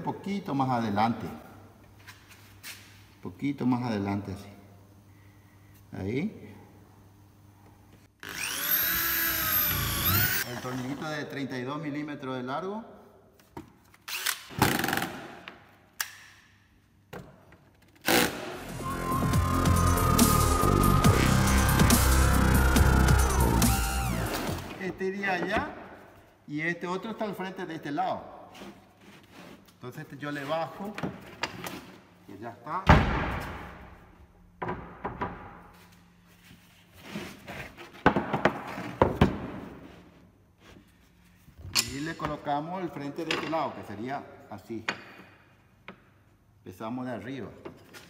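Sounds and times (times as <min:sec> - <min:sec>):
cordless drill driving screw: 0:08.2 - 0:10.8
electronic music: 0:18.5 - 0:24.8.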